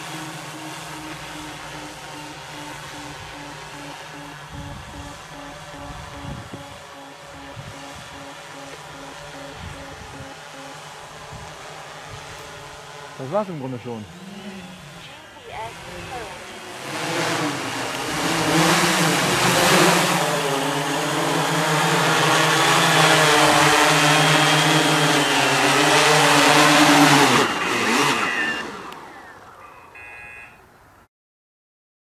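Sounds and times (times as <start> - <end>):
short electronic beeps: 0.0 - 10.9, 23.4 - 30.6
multicopter motors humming: 0.0 - 30.4.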